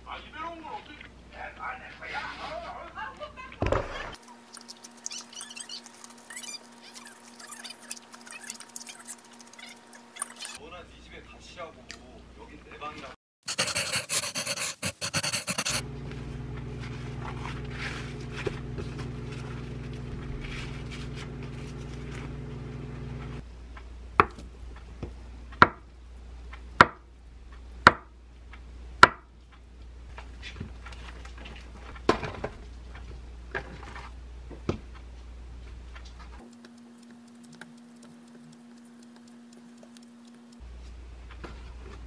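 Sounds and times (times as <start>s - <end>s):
steady hum: 36.4s - 40.8s.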